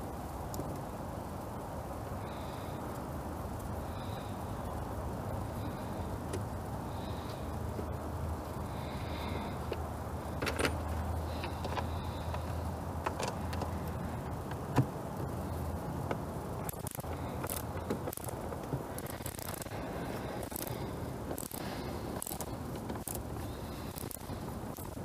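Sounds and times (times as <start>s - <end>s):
hand ratchet clicking: 16.6s - 19.8s, 20.4s - 25.0s.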